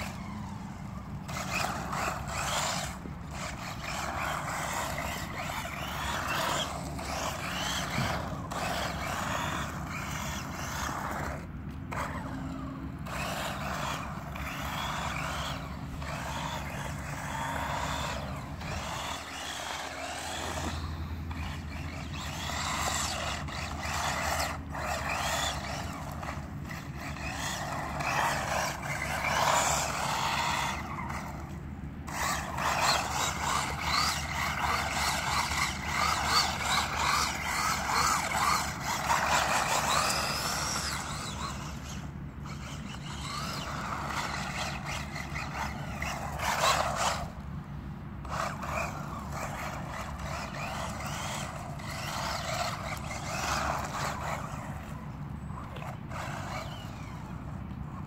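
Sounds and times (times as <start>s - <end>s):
electric motor whirring: 0.0s - 47.4s, 48.2s - 58.0s
tyres scrubbing on asphalt: 0.0s - 58.0s.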